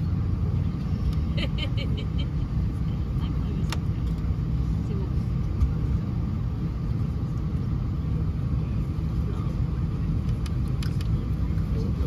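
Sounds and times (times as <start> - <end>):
airliner cabin rumble: 0.0 - 12.0.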